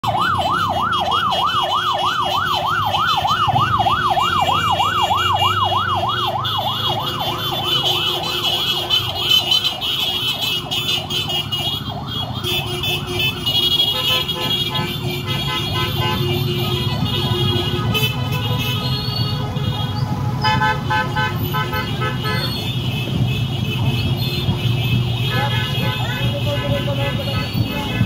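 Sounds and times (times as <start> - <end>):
electronic siren yelping: 0.0 - 10.7
motorcycle engines passing: 0.0 - 28.0.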